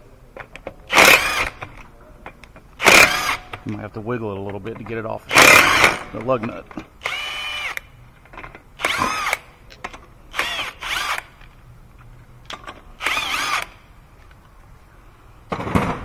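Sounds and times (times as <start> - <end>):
impact wrench spinning: 0.9 - 1.6, 2.8 - 3.6, 5.3 - 6.1.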